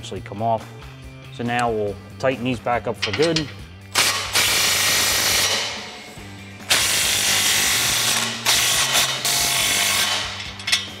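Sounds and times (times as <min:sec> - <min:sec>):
cordless power tool driving nuts: 0:04.0 - 0:06.0, 0:06.7 - 0:10.9.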